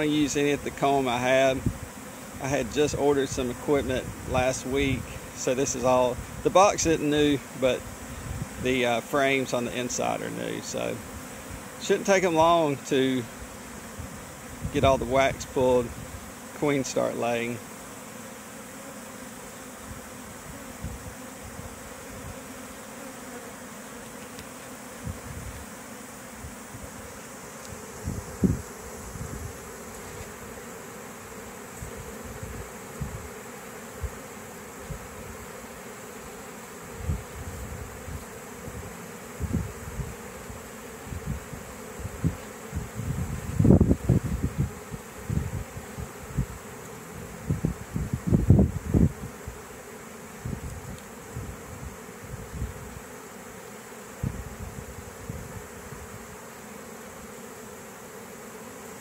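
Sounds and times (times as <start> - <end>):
bee swarm buzzing: 0.0 - 59.0
wind buffeting microphone: 25.0 - 25.5, 28.0 - 29.6, 31.8 - 33.3, 37.0 - 40.2, 41.1 - 46.6, 47.4 - 49.4, 50.4 - 52.9.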